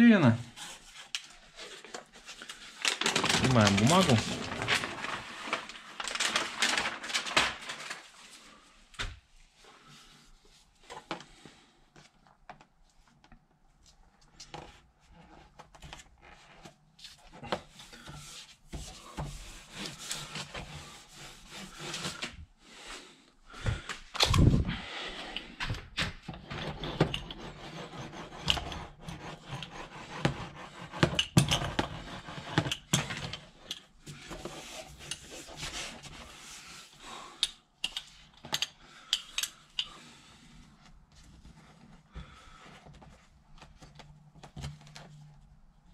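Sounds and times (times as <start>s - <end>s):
foil sheet rustling and crinkling: 1.5s - 8.6s.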